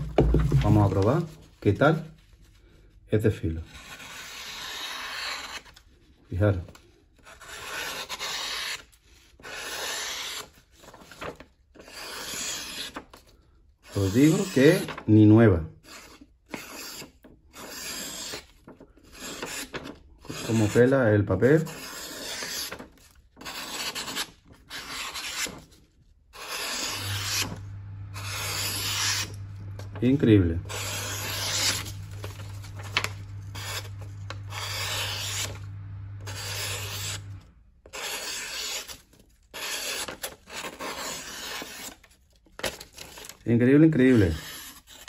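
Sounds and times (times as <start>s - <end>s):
paper rustling: 0.0s - 2.9s, 10.7s - 11.6s, 19.4s - 20.0s, 26.4s - 37.4s
knife slicing paper: 21.6s - 25.8s, 26.4s - 42.0s
low steady hum: 26.8s - 37.7s.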